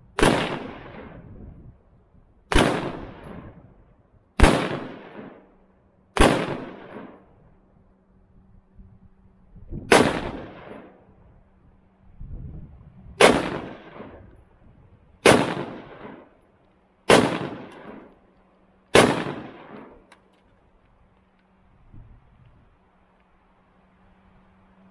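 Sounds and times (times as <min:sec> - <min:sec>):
pistol gunshots echoing: 0:00.2 - 0:01.1, 0:02.5 - 0:03.3, 0:04.4 - 0:05.5, 0:06.2 - 0:07.2, 0:09.9 - 0:11.0, 0:13.2 - 0:14.2, 0:15.2 - 0:16.3, 0:17.1 - 0:18.1, 0:18.9 - 0:20.0.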